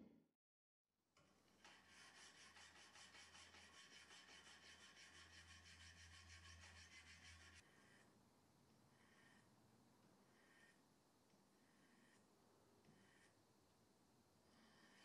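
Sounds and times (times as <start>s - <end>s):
sanding metal blade: 1.6s - 7.6s.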